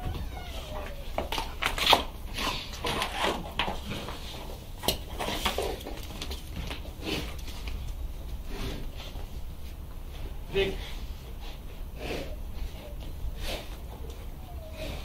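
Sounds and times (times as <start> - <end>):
dogs scuffling on tile: 0.0 - 11.8
dog noises: 11.5 - 15.0.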